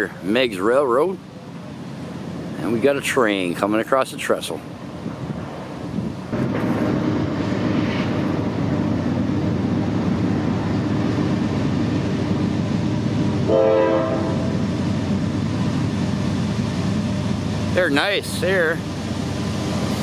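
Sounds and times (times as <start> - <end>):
diesel locomotives running: 0.0 - 20.0
train horn blast: 13.4 - 14.6.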